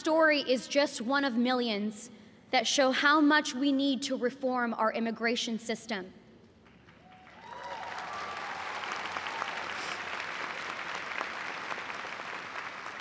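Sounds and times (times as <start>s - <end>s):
large audience applauding: 6.6s - 13.0s.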